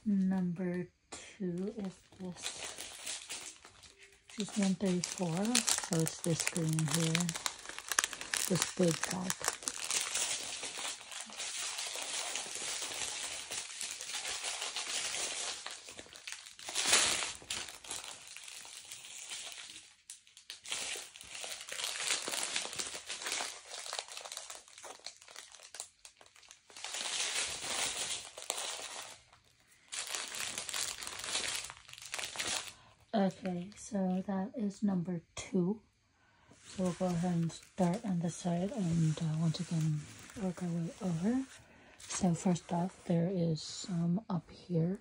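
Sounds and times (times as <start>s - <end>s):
plastic bag crinkling: 1.6s - 33.8s, 36.6s - 43.0s.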